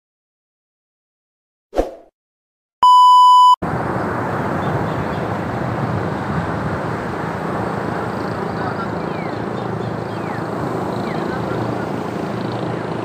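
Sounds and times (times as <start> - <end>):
loud electronic beep: 2.8 - 3.6
wind: 3.6 - 13.0.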